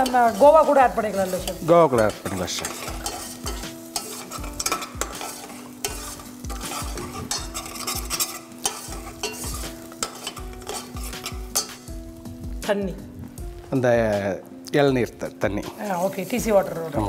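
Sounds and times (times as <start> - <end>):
spoon scraping and clinking pan: 0.0 - 11.9
simmering pan sizzle: 0.0 - 17.0.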